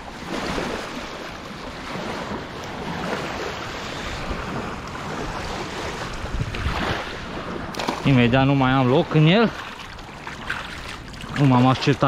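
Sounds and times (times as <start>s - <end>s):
wind noise on microphone: 0.0s - 8.8s
river water splashing: 0.0s - 12.0s.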